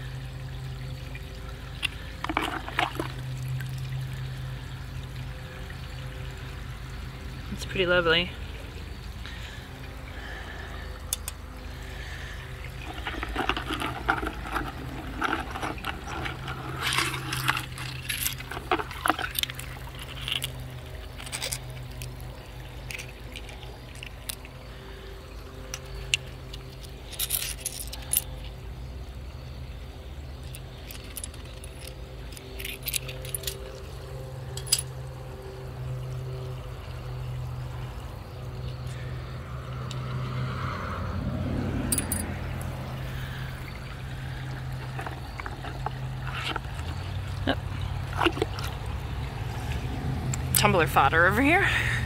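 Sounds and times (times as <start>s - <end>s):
wet splashy handling: 1.7s - 3.8s, 11.1s - 24.6s, 41.9s - 51.5s
stones clinking together: 1.8s - 3.3s, 11.1s - 11.4s, 12.7s - 24.5s, 41.9s - 48.9s.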